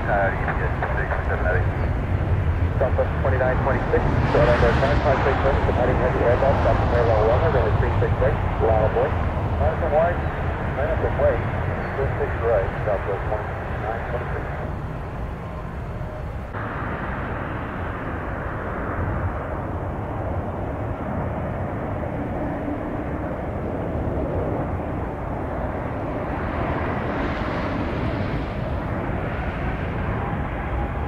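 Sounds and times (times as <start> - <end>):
jet engines running: 0.0 - 31.0.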